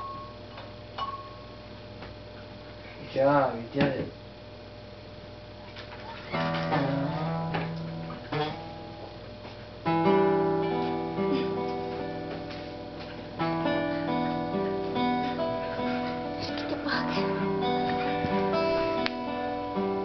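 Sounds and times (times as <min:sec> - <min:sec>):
acoustic guitar strummed chords: 0:06.2 - 0:20.0.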